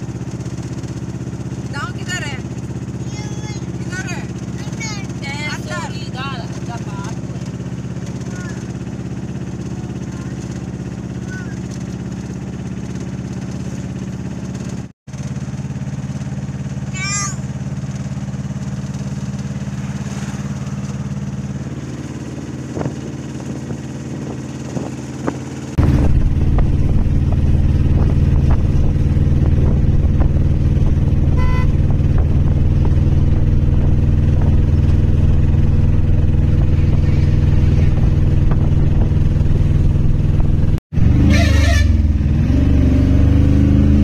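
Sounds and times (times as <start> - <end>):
vehicle engine and road noise: 0.0 - 44.0
street noise: 31.1 - 44.0.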